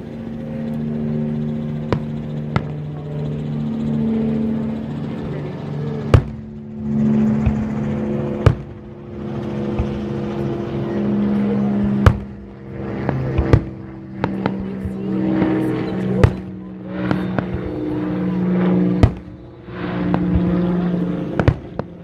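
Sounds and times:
vehicle traffic hum: 0.0s - 22.0s
fireworks bangs: 6.1s - 6.5s, 8.4s - 8.8s, 11.8s - 12.4s, 13.0s - 15.6s, 16.2s - 16.5s, 18.9s - 19.3s, 21.4s - 21.9s.

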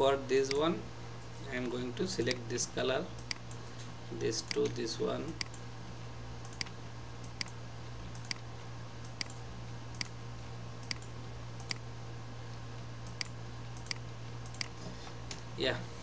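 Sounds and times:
low electrical hum: 0.0s - 16.0s
computer mouse clicking: 3.2s - 3.6s, 4.5s - 4.8s, 5.4s - 5.6s, 6.4s - 8.4s, 9.0s - 10.2s, 10.8s - 11.8s, 13.0s - 15.4s.

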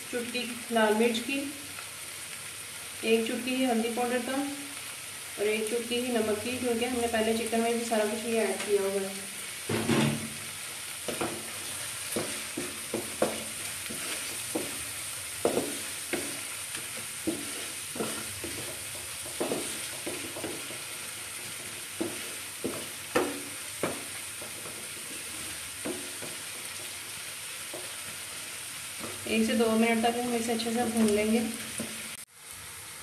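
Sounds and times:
food sizzling in oil: 0.0s - 33.0s
spatula scraping and knocking pan: 9.7s - 30.1s.

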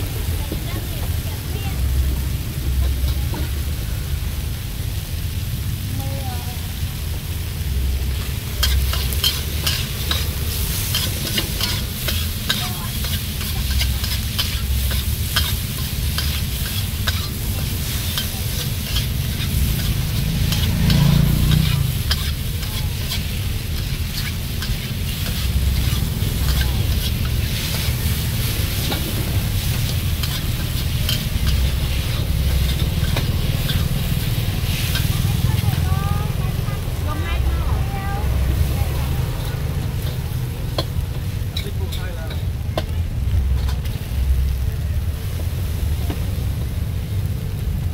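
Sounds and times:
low rumble: 0.0s - 47.9s
noodles sizzling: 0.0s - 47.9s
ladle scraping and clacking wok: 7.0s - 44.6s.

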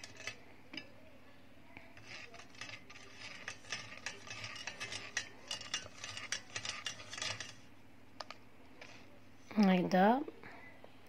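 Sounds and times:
spoon scraping a metal sieve: 0.0s - 0.9s, 1.8s - 7.7s.

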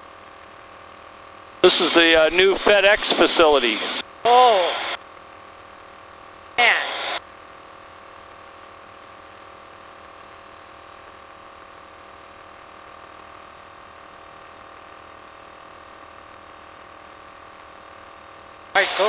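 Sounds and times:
cockpit intercom hum: 1.6s - 5.0s, 6.6s - 7.2s, 18.8s - 19.0s.

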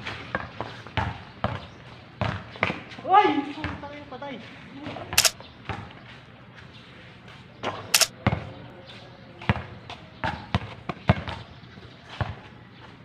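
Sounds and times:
basketball bouncing: 0.3s - 2.9s, 3.6s - 3.8s, 10.2s - 11.5s.

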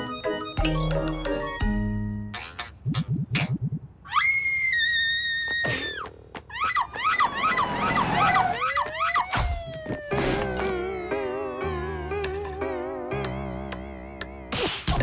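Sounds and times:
background music: 0.0s - 2.4s, 10.0s - 15.0s.

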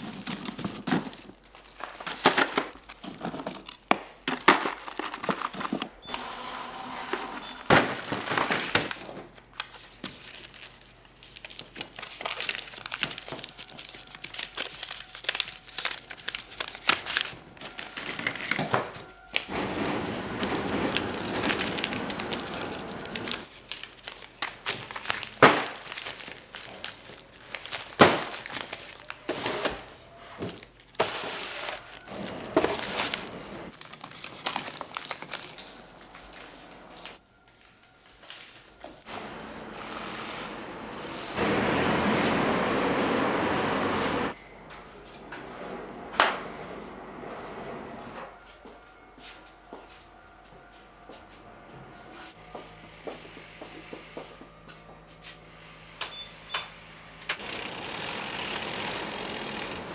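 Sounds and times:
crinkling: 0.0s - 6.2s, 7.6s - 39.6s.

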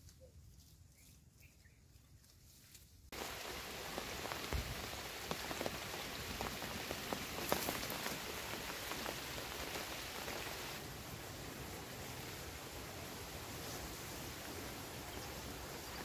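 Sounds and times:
patter of falling drops: 3.1s - 10.8s.

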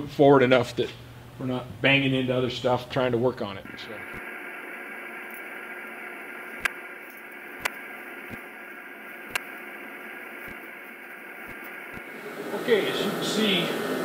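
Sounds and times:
faint hum: 0.0s - 14.0s
static hiss: 1.0s - 14.0s
sharp clicks: 3.7s - 12.1s.

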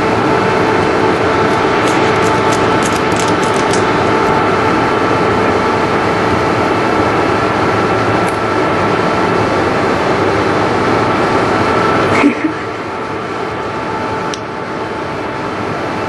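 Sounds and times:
loud steady noise with humming tones: 0.0s - 16.0s.

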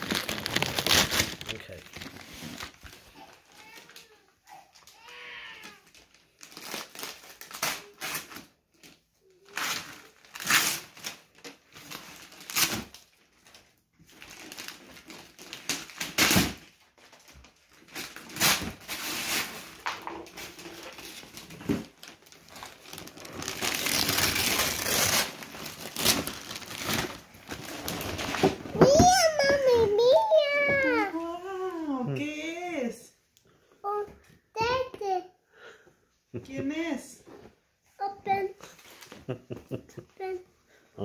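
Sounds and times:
wrapping paper tearing and crumpling: 0.0s - 31.1s.

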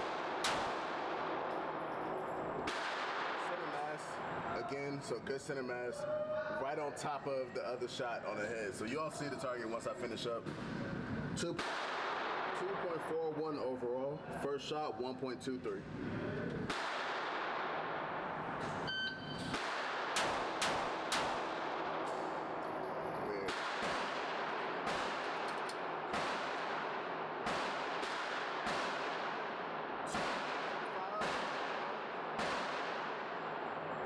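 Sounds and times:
single gunshots: 0.0s - 1.8s, 2.6s - 4.0s, 11.5s - 13.0s, 16.7s - 18.4s, 19.4s - 22.5s, 23.4s - 33.7s
rapid pistol shots: 0.0s - 1.9s, 2.6s - 4.0s, 11.5s - 13.2s, 16.7s - 18.6s, 19.4s - 22.6s, 23.4s - 33.8s
shot timer beep: 18.9s - 19.5s.

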